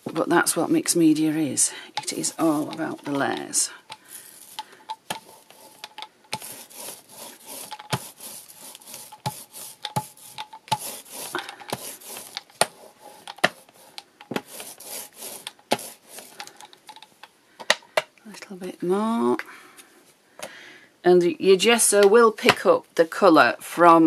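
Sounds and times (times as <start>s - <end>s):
rubber roller rubbing strokes: 1.4s - 17.0s.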